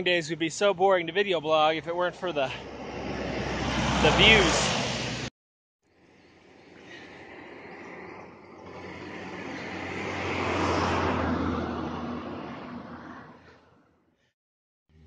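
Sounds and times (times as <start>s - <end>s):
road vehicle passing: 2.1s - 5.3s, 6.4s - 13.9s.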